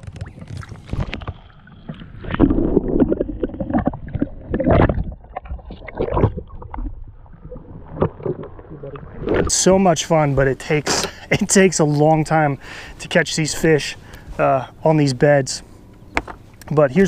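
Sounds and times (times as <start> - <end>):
water splashing and sloshing: 0.0 - 10.5.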